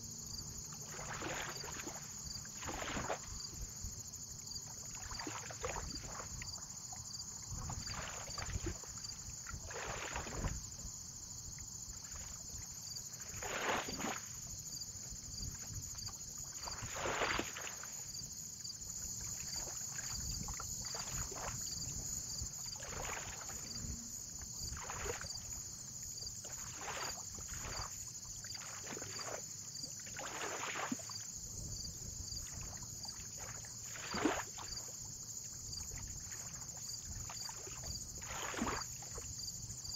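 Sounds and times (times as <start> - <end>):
small waves lapping: 0.0 - 39.9
low rumble of wind: 31.4 - 32.9.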